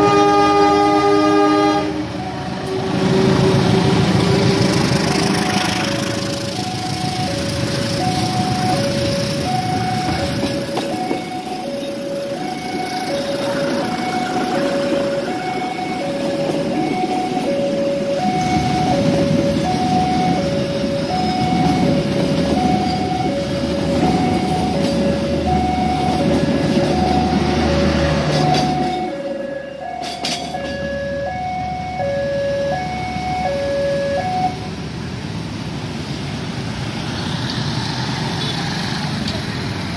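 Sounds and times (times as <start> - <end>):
passenger train rumbling past: 0.0 - 39.9
traffic noise: 0.0 - 39.9
two-note crossing alarm: 6.0 - 34.7.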